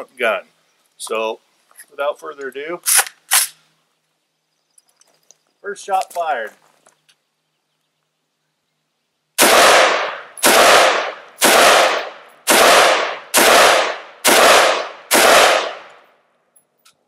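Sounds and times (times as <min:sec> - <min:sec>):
rifle shots echoing: 0:09.4 - 0:16.1.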